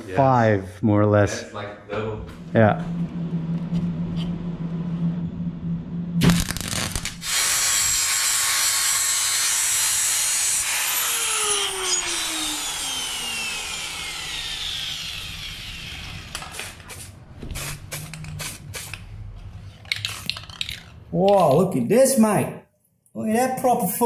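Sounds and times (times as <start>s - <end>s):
power tool grinding: 6.5s - 18.9s.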